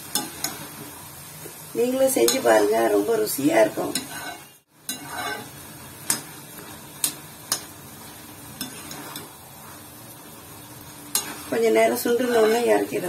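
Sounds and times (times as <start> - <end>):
low sizzle: 0.0 - 13.0
metal spatula scraping a pan: 3.6 - 7.7, 8.5 - 9.9, 11.0 - 13.0.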